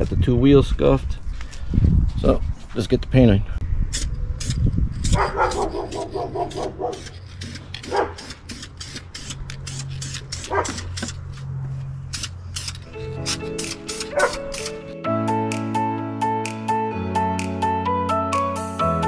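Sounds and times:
dog yipping and barking: 0:05.1 - 0:07.2, 0:07.8 - 0:08.3, 0:10.4 - 0:10.9, 0:14.0 - 0:14.6
spray paint can hissing: 0:05.9 - 0:11.2, 0:12.1 - 0:14.8
music: 0:12.9 - 0:19.0.

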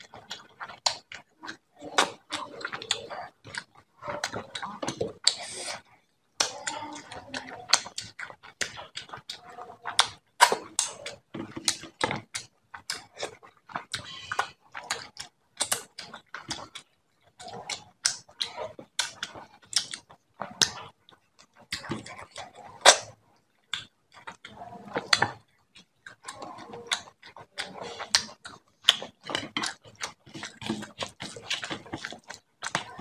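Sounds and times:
wet chewing and lip smacks: 0:00.0 - 0:33.0
fingers mixing food on metal plate: 0:23.6 - 0:33.0.

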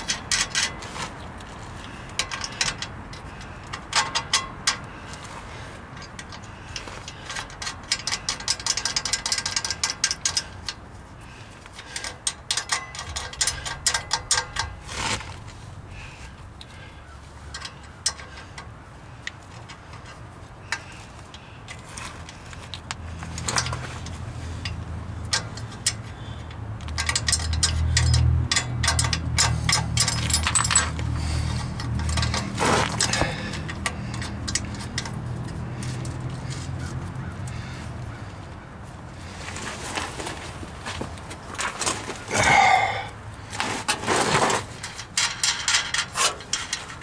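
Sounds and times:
wrench and clamp clinking: 0:00.0 - 0:05.0, 0:05.9 - 0:10.8, 0:11.7 - 0:15.5, 0:17.5 - 0:37.7, 0:43.8 - 0:47.0.

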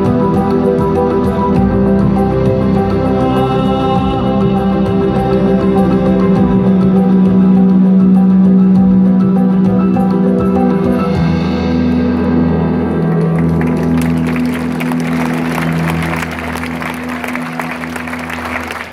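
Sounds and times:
audience applause: 0:12.9 - 0:18.9.

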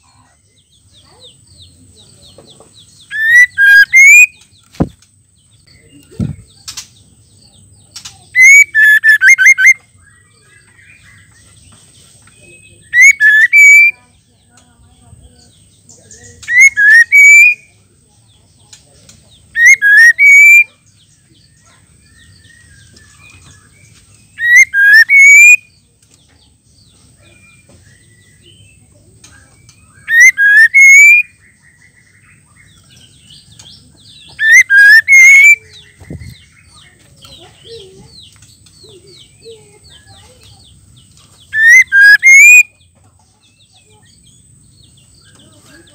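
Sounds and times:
bird calling with whistled notes: 0:02.8 - 0:04.9, 0:08.1 - 0:11.4, 0:12.3 - 0:14.1, 0:16.0 - 0:17.8, 0:19.4 - 0:25.8, 0:26.8 - 0:38.4, 0:41.3 - 0:44.4.

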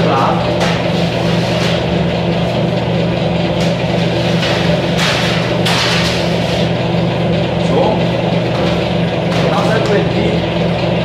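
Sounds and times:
baking sheet scraping on metal: 0:00.0 - 0:02.2, 0:03.6 - 0:06.8
mixer humming: 0:00.0 - 0:11.0.

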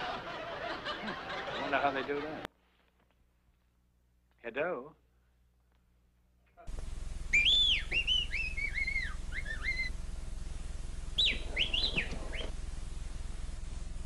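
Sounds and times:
chirpy bird-like whistling: 0:07.3 - 0:10.0, 0:11.2 - 0:12.6.

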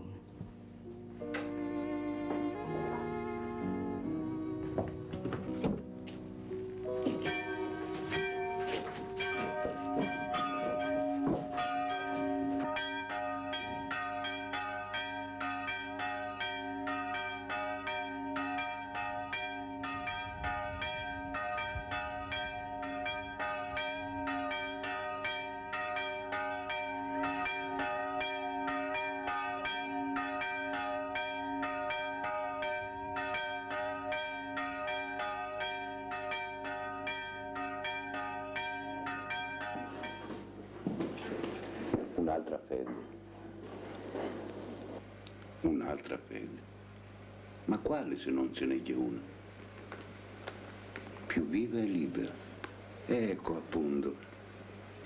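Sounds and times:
church bells pealing: 0:01.0 - 0:43.6, 0:51.3 - 0:52.4.

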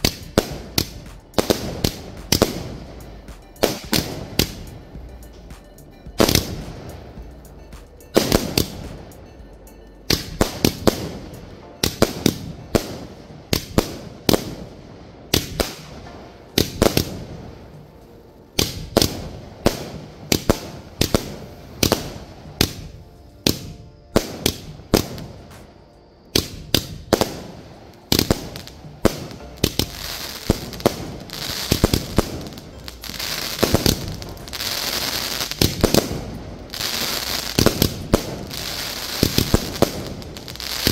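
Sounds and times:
fireworks bangs: 0:00.0 - 0:09.2, 0:18.6 - 0:40.9
fireworks crackle: 0:00.0 - 0:09.3, 0:10.1 - 0:40.9.

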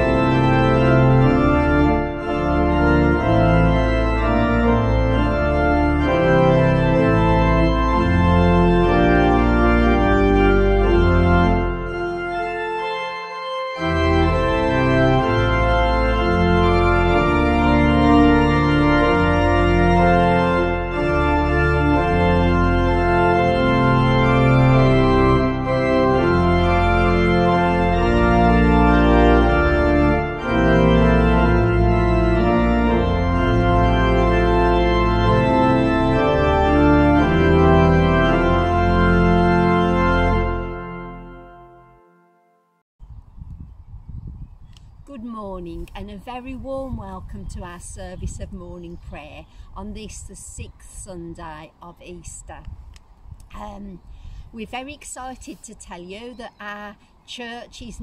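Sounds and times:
organ playing slow chords: 0:00.0 - 0:42.8.

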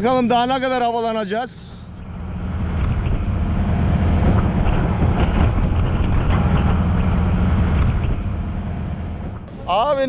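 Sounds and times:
wind: 0:00.0 - 0:10.0
rushing boat wake: 0:01.8 - 0:09.8
speedboat engine running: 0:01.8 - 0:10.0.

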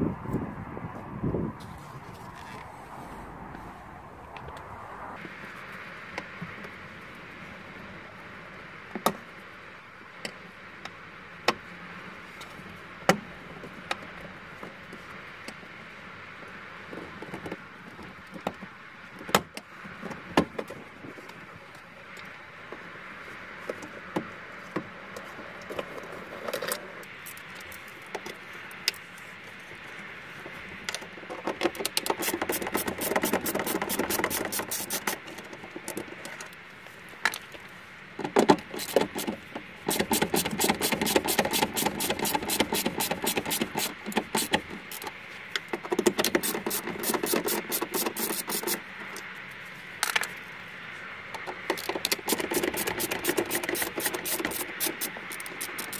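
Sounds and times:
fast dense clicking and rattling: 0:38.4 - 0:44.7.

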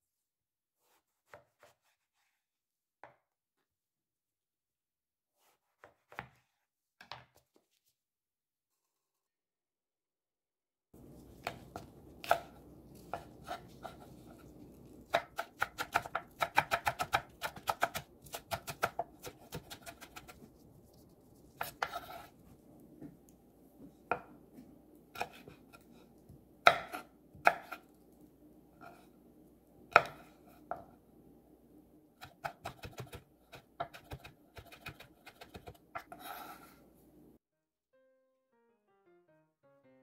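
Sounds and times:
knife chopping on cutting board: 0:05.4 - 0:06.4, 0:11.2 - 0:14.5, 0:15.1 - 0:20.5, 0:21.6 - 0:22.3, 0:25.2 - 0:25.9, 0:26.6 - 0:27.8, 0:29.9 - 0:30.9, 0:32.2 - 0:36.6.

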